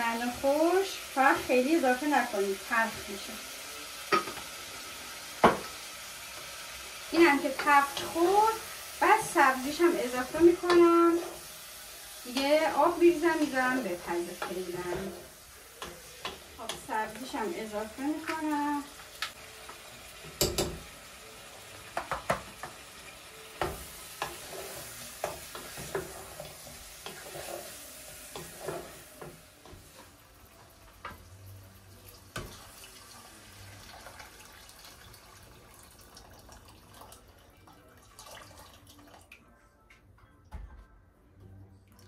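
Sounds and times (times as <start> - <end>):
vegetables sizzling in a pot: 0.0 - 37.9
spoon knocking against a pot: 20.4 - 20.8.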